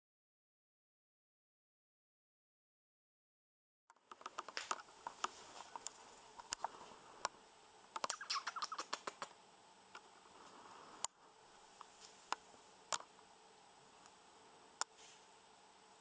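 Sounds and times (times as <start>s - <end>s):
sharp click: 7.9s - 9.4s.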